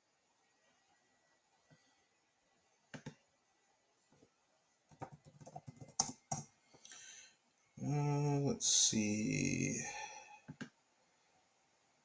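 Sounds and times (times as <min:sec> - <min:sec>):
faint keyboard typing: 0:02.9 - 0:03.3, 0:04.1 - 0:07.0, 0:10.4 - 0:10.8.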